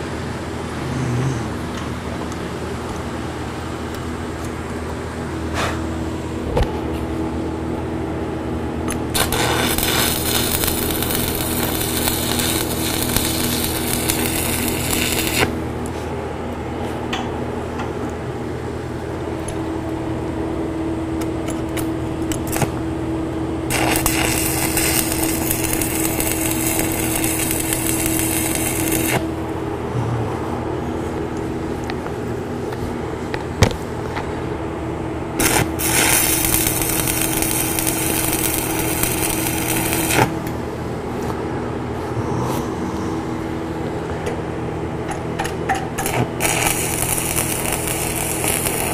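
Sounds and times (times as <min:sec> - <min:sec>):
steady low hum: 0:00.0 - 0:48.9
welding arc crackling and hissing: 0:08.9 - 0:15.6, 0:21.7 - 0:22.9, 0:23.6 - 0:29.4, 0:35.4 - 0:40.6, 0:46.0 - 0:48.9.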